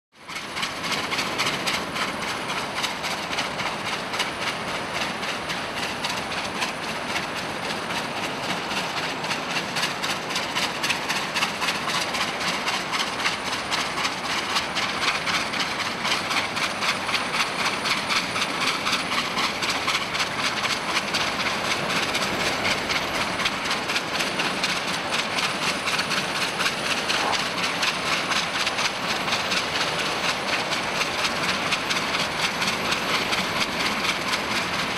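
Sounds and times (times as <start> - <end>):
steam locomotive exhaust beats: 0.2 - 34.9
steam hissing: 8.4 - 34.9.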